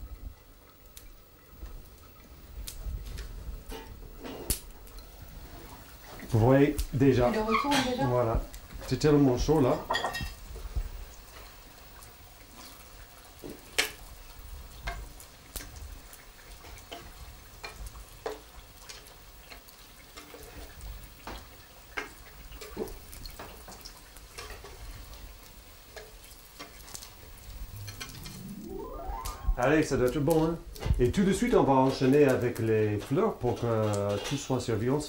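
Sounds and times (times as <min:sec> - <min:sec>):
deep-frying sizzle: 0:00.0 - 0:35.0
oil popping and crackling: 0:00.8 - 0:35.0.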